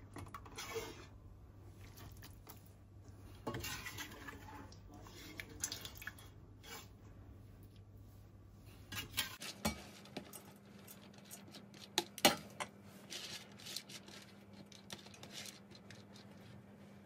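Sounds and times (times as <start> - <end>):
low steady hum: 0.0 - 17.0
cookware and utensils clattering: 3.4 - 6.9, 8.9 - 10.5.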